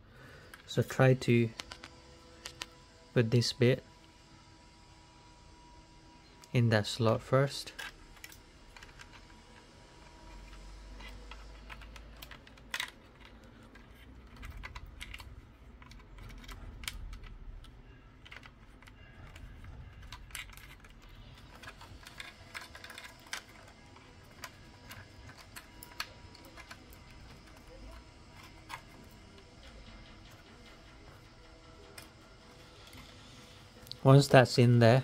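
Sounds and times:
metal bracket clicks and scrapes: 0:07.5 - 0:31.2.

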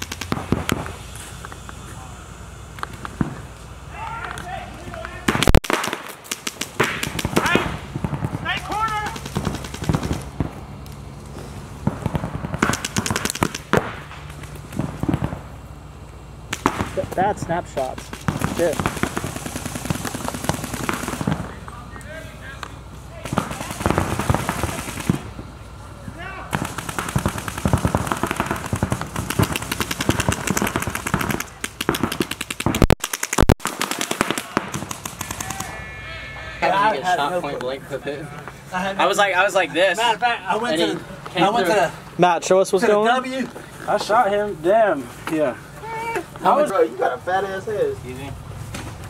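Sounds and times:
paintball markers firing: 0:00.0 - 0:01.8, 0:04.3 - 0:07.8, 0:08.6 - 0:10.5, 0:12.0 - 0:15.3, 0:17.8 - 0:21.5, 0:26.5 - 0:35.7
sharp cracks: 0:00.0 - 0:01.8, 0:04.2 - 0:15.6, 0:16.5 - 0:21.6, 0:22.6 - 0:25.4, 0:26.5 - 0:35.8.

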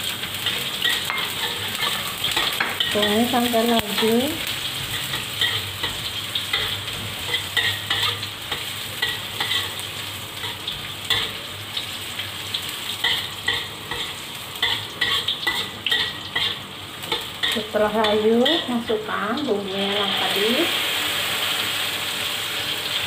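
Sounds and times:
onions sizzling in oil: 0:00.0 - 0:23.0
metal spatula scraping pan: 0:00.3 - 0:09.8, 0:13.0 - 0:19.0.

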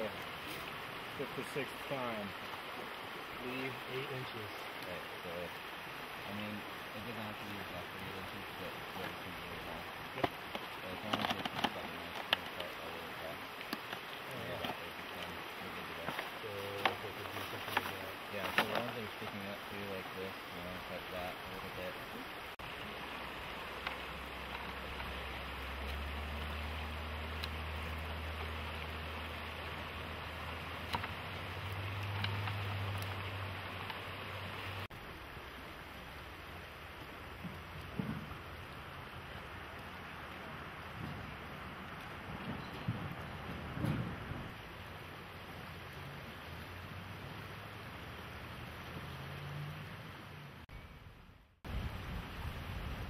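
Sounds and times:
river water rushing: 0:00.0 - 0:42.4
wind on microphone: 0:42.1 - 0:44.6, 0:51.6 - 0:53.0.

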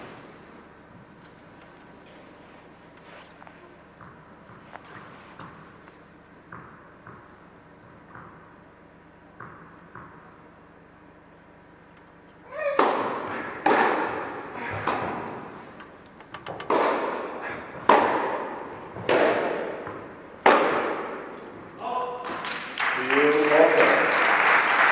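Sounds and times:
tennis ball hits echoing: 0:12.8 - 0:15.5, 0:16.6 - 0:21.3.

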